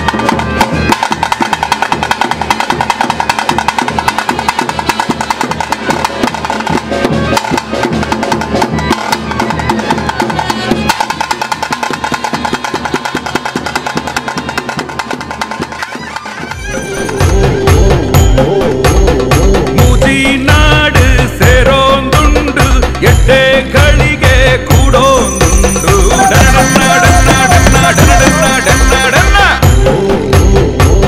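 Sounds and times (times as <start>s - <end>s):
fast dense drumming: 0.0s - 15.8s, 17.1s - 31.0s
folk song with heavy beat: 0.0s - 31.0s
high held pipe tone: 24.9s - 29.7s.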